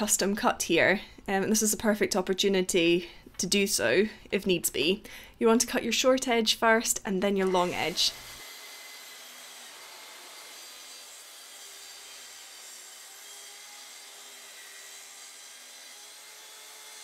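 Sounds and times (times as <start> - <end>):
track saw cutting wood: 7.5 - 17.0.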